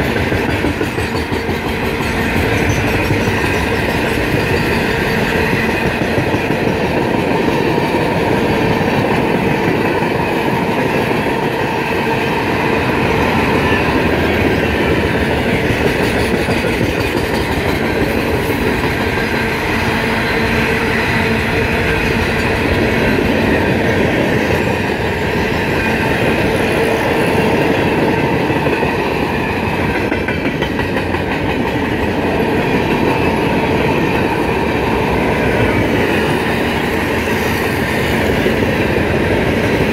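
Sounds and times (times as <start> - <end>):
clatter over rail joints: 0.0 - 7.2, 15.4 - 19.2
freight train wheels rumbling on rail: 0.0 - 39.9.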